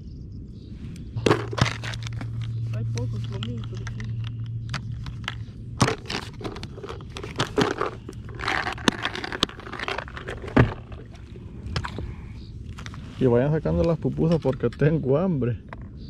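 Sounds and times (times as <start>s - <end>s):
faint low hum: 0.0s - 16.0s
handling crinkling and rustling: 1.2s - 15.0s.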